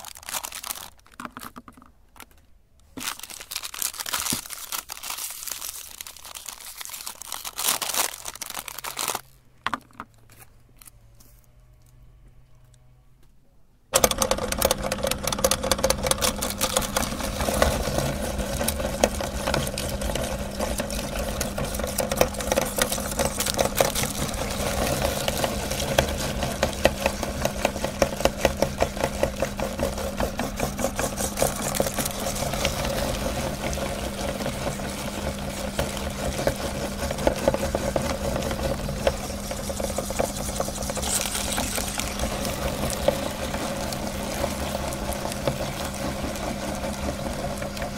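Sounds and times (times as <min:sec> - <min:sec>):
fast clicking and clattering: 0:14.0 - 0:47.9
meat grinder humming: 0:14.0 - 0:47.9.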